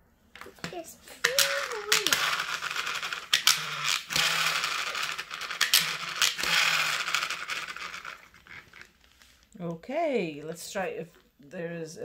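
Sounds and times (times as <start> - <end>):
rattling buzz: 1.2 - 8.9
small motor whirring: 1.3 - 8.9.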